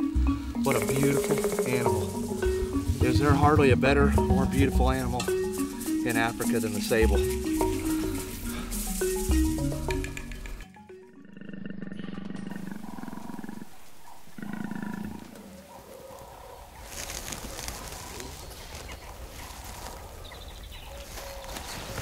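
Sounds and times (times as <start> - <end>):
leopard growling: 0.0 - 4.5, 11.1 - 16.6
background music: 0.0 - 11.7.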